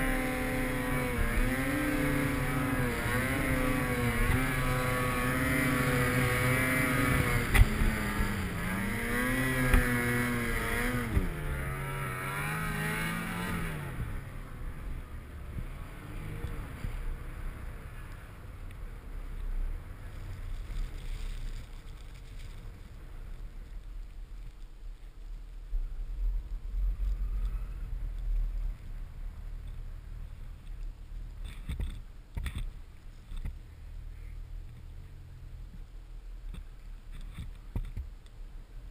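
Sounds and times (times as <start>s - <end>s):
snowmobile engine revving: 0.0s - 17.0s.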